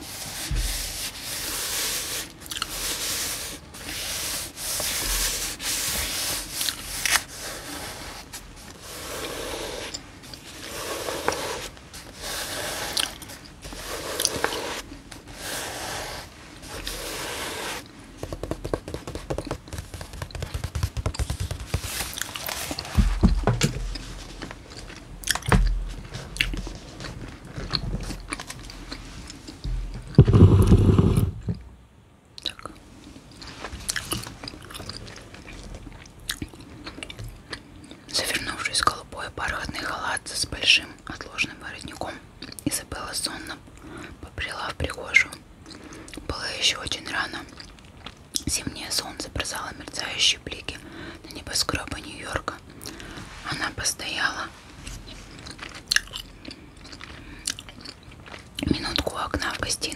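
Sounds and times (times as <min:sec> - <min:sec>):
fingernails scratching paper pages: 0:00.0 - 0:23.0
book pages rustling: 0:00.0 - 0:31.3
dull thumps: 0:18.2 - 0:22.2, 0:22.9 - 0:24.0, 0:29.6 - 0:31.7.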